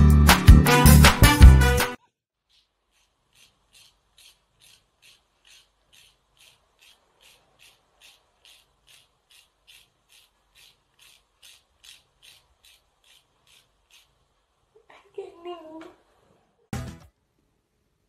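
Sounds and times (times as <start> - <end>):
nail file rasping on claws: 2.4 - 14.6.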